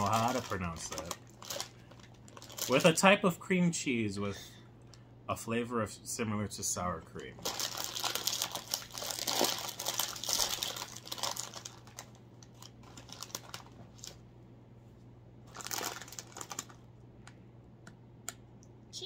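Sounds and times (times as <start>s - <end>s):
foil snack bag crinkling: 0.0s - 3.1s, 7.2s - 14.2s, 15.5s - 16.9s.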